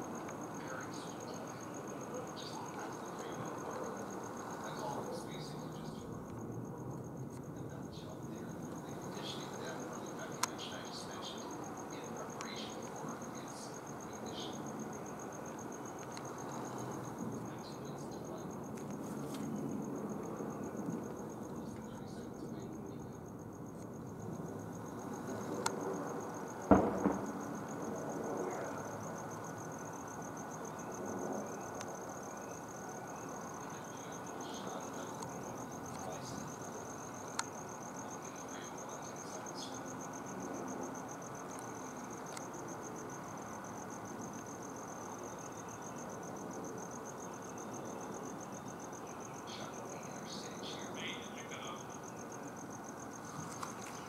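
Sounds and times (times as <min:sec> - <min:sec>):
background noise: 0:00.0 - 0:54.0
crickets chirping: 0:00.0 - 0:54.0
sharp knock: 0:26.7 - 0:27.4.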